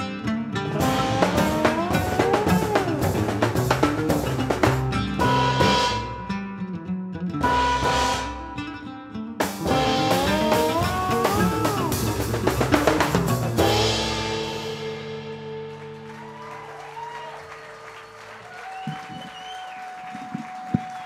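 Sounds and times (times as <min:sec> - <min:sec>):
band playing with oud and steel: 0:00.0 - 0:17.1
heavy drumming: 0:00.7 - 0:06.2, 0:09.4 - 0:16.5.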